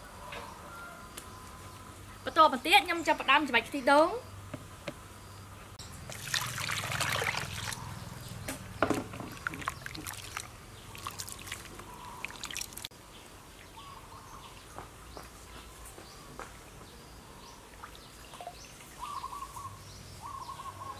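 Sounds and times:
liquid trickling: 6.0s - 7.9s, 9.0s - 12.9s
wet squelching of hands kneading: 6.1s - 7.8s, 9.2s - 12.9s.

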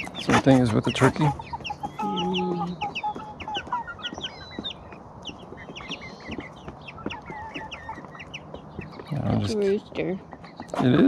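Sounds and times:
low clucks: 0.0s - 3.9s, 10.3s - 11.0s
chicks peeping: 0.0s - 11.0s.

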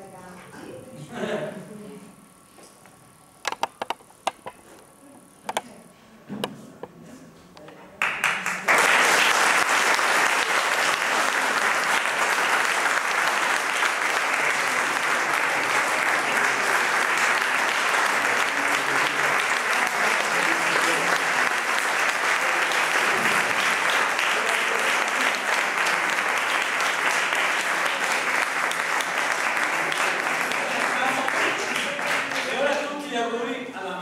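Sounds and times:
audience applauding: 8.0s - 33.1s.

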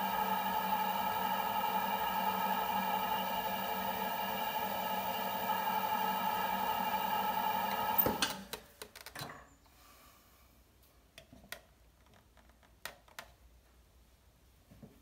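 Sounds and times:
potter's wheel humming: 0.0s - 8.4s.

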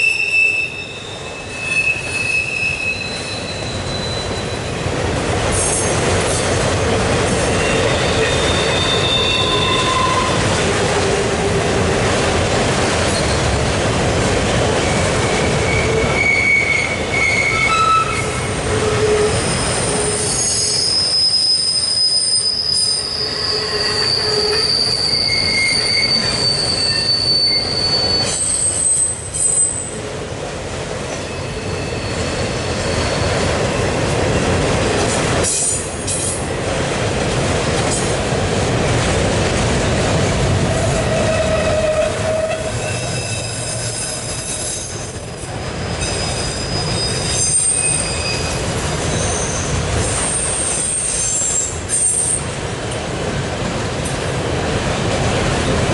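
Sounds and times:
wheel squeal: 0.0s - 4.8s, 7.5s - 10.4s, 14.9s - 29.9s, 31.1s - 33.4s, 40.9s - 52.4s
train wheels rumbling on rails: 0.0s - 55.9s.

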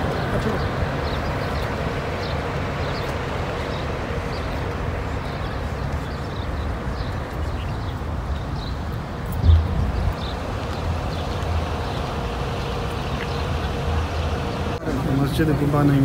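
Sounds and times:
traffic noise rumble: 0.0s - 16.0s
low thump: 9.4s - 10.2s.

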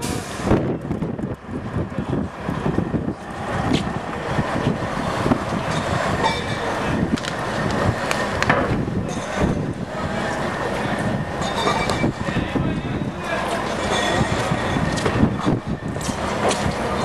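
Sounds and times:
truck engine and tyre rumble: 0.0s - 17.0s
wheels clattering over panel joints: 10.9s - 17.0s.

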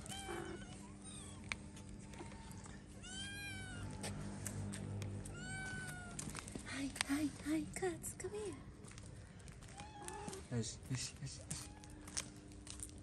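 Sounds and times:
cats meowing: 0.0s - 4.3s, 5.2s - 6.6s, 9.1s - 10.6s, 11.2s - 12.4s.

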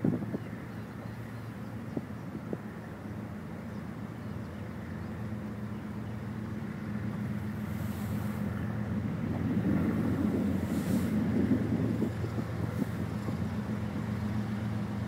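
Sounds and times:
wind gusts on microphone: 0.0s - 0.9s, 7.5s - 15.0s
diesel locomotive engines droning: 0.0s - 15.0s.

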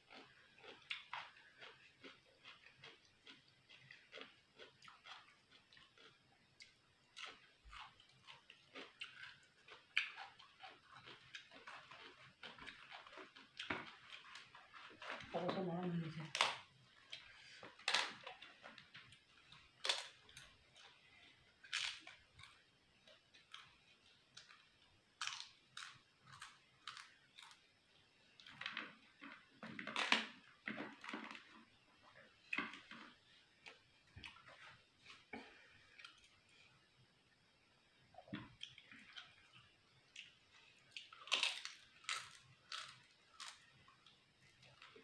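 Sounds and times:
chewing: 0.0s - 15.5s, 38.2s - 45.0s.

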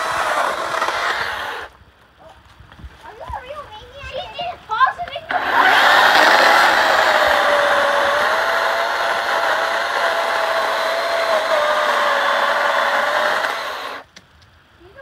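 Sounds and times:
electric chainsaw cutting wood: 0.0s - 1.7s, 5.3s - 14.1s.

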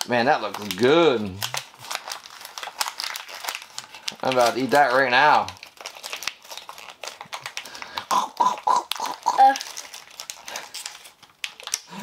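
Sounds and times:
person making munching noises: 7.9s - 9.7s.

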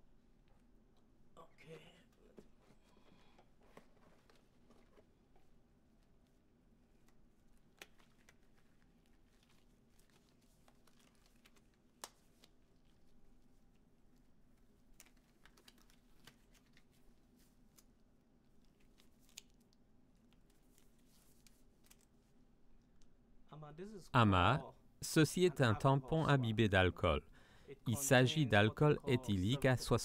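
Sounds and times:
faint room hum: 0.0s - 30.0s
gloves rustling: 2.5s - 22.7s.

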